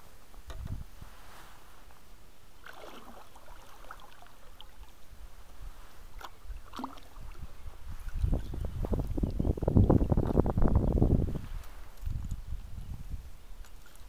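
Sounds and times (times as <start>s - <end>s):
paddle splashing in water: 2.6s - 4.9s, 5.6s - 8.4s.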